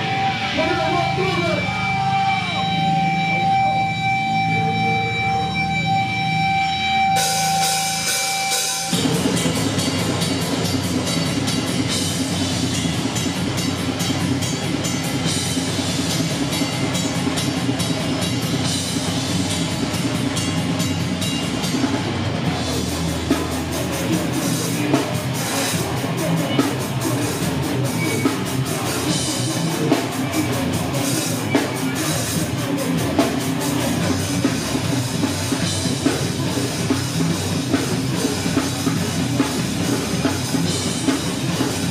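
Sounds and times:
steady high tone: 0.0 - 18.8
drum kit: 0.0 - 41.9
live rock band playing: 0.0 - 41.9.

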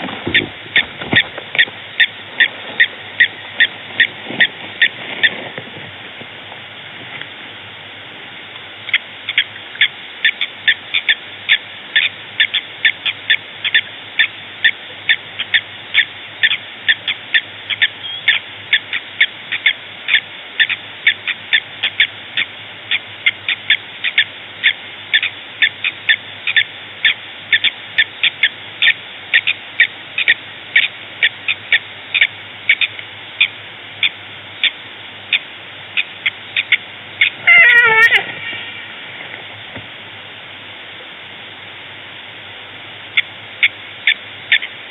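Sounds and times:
animal chirping: 0.3 - 5.4, 8.9 - 35.4, 36.0 - 38.8, 43.2 - 44.8
animal call sliding downward: 37.2 - 39.2.

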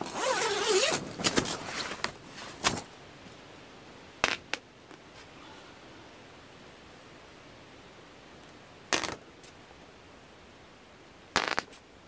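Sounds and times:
tent zipper pulled: 0.0 - 2.8.

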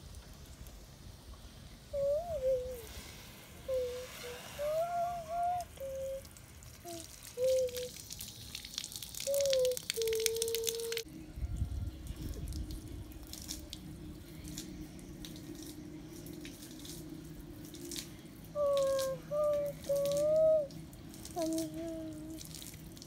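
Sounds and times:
rainwater dripping into puddles: 0.0 - 2.0, 4.6 - 23.0
faint low hum: 9.8 - 23.0.

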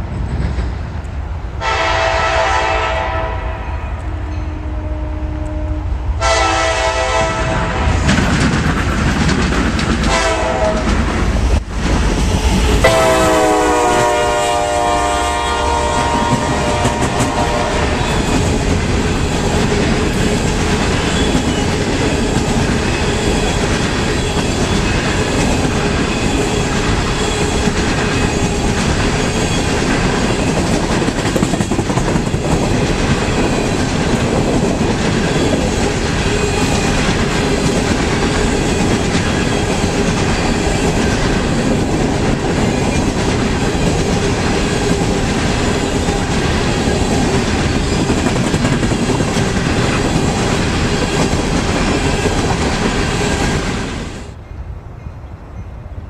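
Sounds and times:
train wheels rolling on rail: 0.0 - 3.3, 5.4 - 56.0
locomotive horn: 1.6 - 8.1, 10.1 - 10.9, 12.6 - 18.3.

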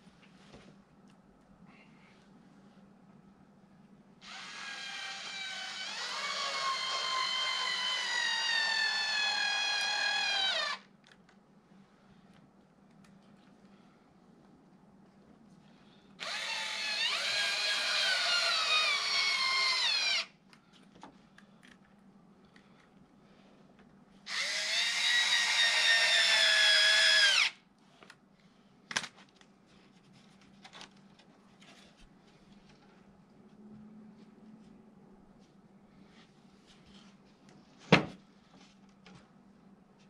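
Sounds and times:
power drill whine: 4.2 - 10.9, 16.2 - 20.3, 24.3 - 27.6.

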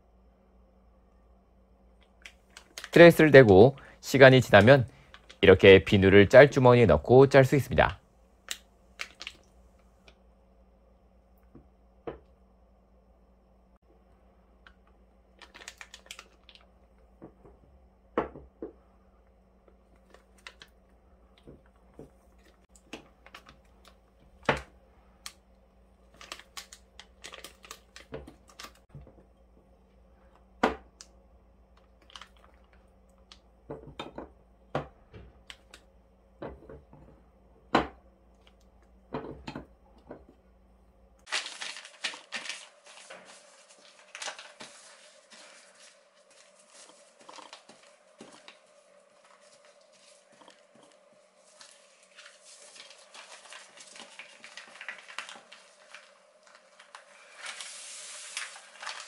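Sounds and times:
plastic bag crinkling: 15.4 - 16.7, 26.1 - 28.9, 41.3 - 59.0.

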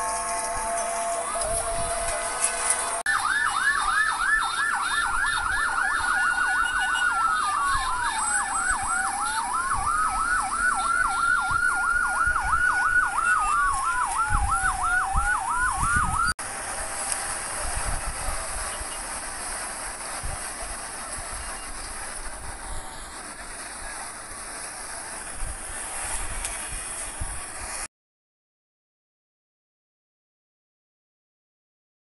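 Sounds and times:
siren fast yelp: 0.0 - 16.3
siren slow wail: 0.0 - 16.4.

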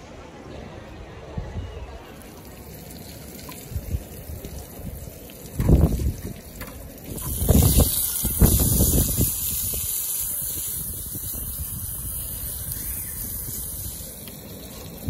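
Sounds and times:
wind buffeting microphone: 3.7 - 14.2
zucchini sizzling in a pan: 4.7 - 15.0.

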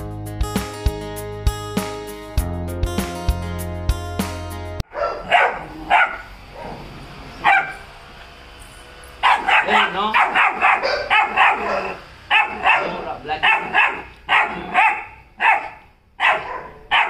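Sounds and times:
background music: 0.0 - 4.8
puppy barking: 4.9 - 7.8, 9.2 - 17.0.

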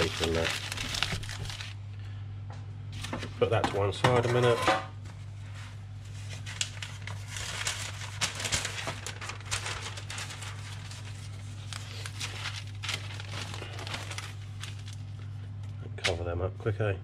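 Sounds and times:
newspaper rustling and crinkling: 0.0 - 1.8, 5.2 - 15.4
steady low hum: 0.0 - 17.0.

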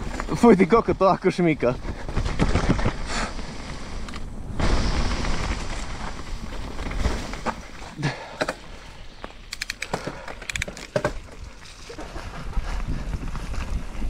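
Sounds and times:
bike tyre rumble: 0.0 - 14.0
bike clicks and squeaks: 9.2 - 11.3
wind on microphone: 11.4 - 14.0.

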